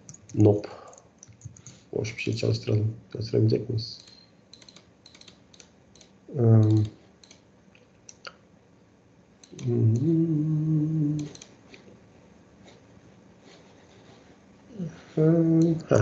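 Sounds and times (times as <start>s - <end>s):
keyboard and mouse clicks: 0.0s - 1.8s, 4.0s - 8.3s, 11.2s - 11.9s
man humming: 6.3s - 6.9s, 9.5s - 11.4s, 14.7s - 16.0s.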